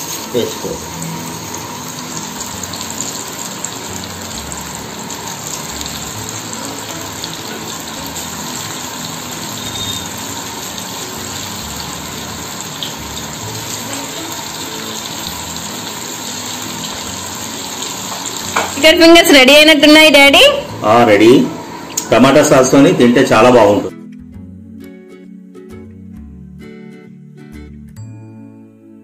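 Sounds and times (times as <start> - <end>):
oil sizzling and bubbling: 0.0 - 22.2.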